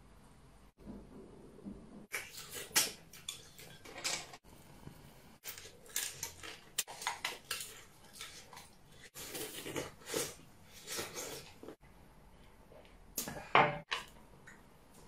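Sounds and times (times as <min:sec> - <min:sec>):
slurping and eating noises: 0:04.8 - 0:11.8.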